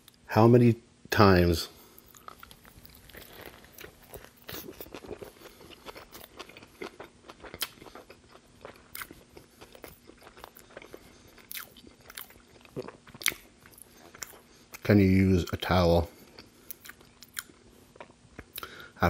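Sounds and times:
biting into burger: 2.0 - 14.4
wet chewing clicks and crunches: 2.0 - 14.9, 16.3 - 18.7.

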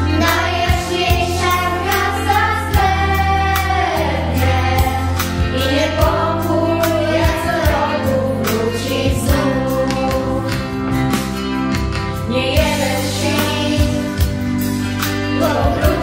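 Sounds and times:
girls' choir singing: 0.0 - 10.5, 15.4 - 16.0
backing music with bass and beat: 0.0 - 16.0.

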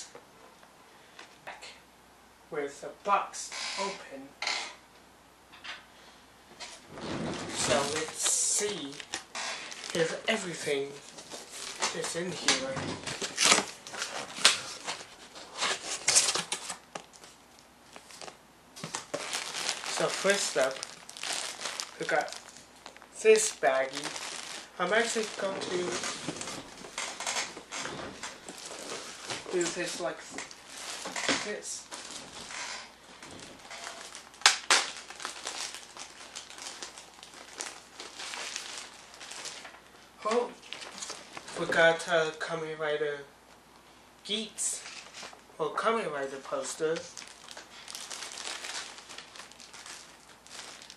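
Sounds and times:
plastic bag crinkling: 6.8 - 40.0, 40.6 - 41.8, 46.5 - 50.9.

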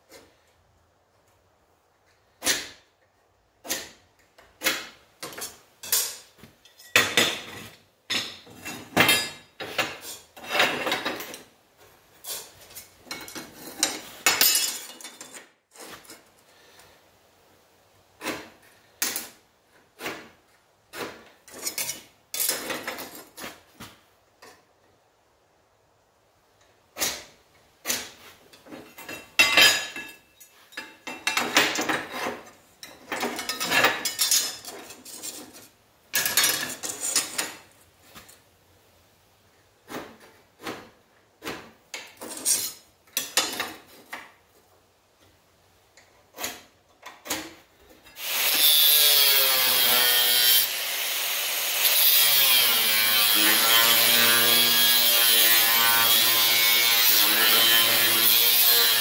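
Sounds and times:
angle grinder cutting steel: 48.2 - 59.0.

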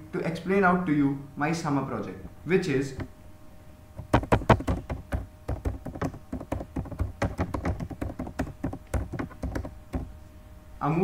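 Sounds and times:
keyboard key clicks: 4.1 - 10.1.

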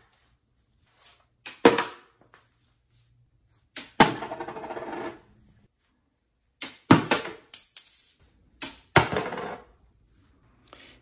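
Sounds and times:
coin hitting floor and rattling: 7.2 - 8.3.

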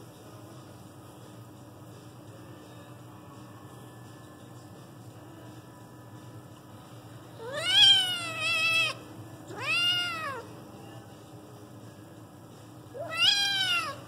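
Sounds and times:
kitten meowing: 7.4 - 10.4, 13.0 - 14.0.

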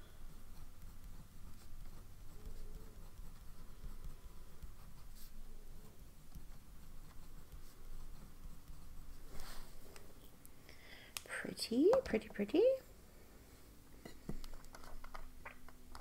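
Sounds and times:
fountain pen scratching on paper: 0.3 - 9.6.

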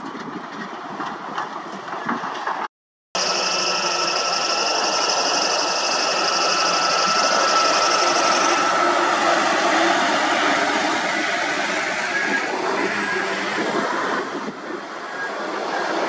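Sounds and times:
high-pitched whine: 3.2 - 16.0.

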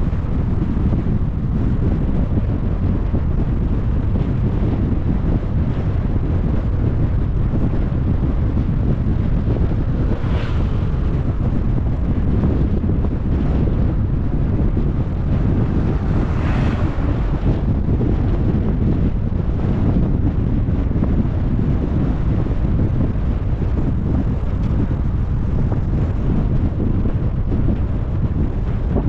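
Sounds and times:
car driving rumble: 0.0 - 29.0
wind buffeting microphone: 0.0 - 29.0.

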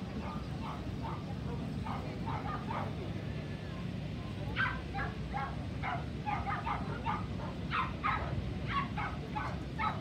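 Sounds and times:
dog barking: 0.2 - 3.0, 4.6 - 10.0.

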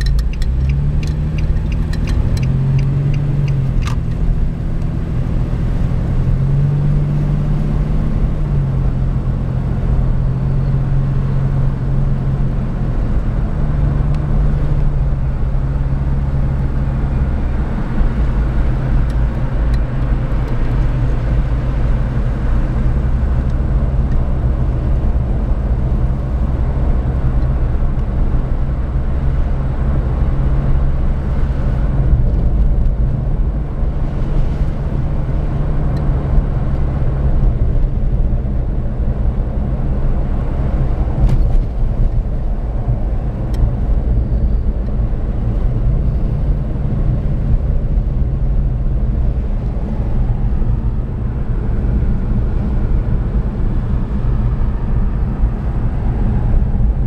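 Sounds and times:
car cabin road noise: 0.0 - 57.0
engine hum shifting pitch: 0.0 - 57.0.

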